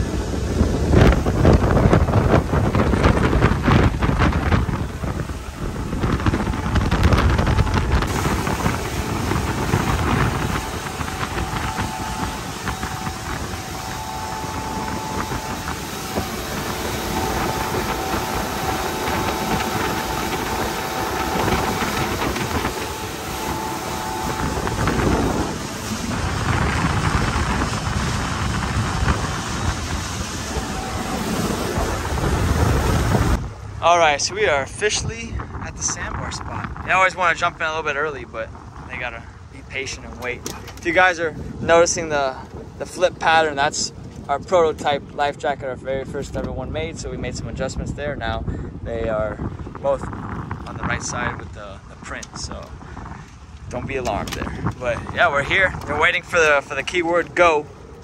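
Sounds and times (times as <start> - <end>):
rushing water: 0.0 - 34.8
boat engine: 0.0 - 47.9, 48.9 - 58.0
wind buffeting microphone: 0.0 - 58.0.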